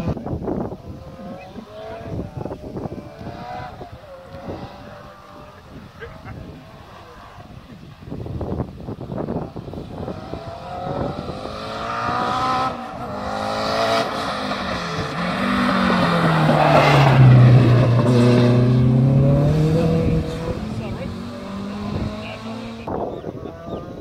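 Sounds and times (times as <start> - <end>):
race car engine at full throttle: 0.0 - 24.0.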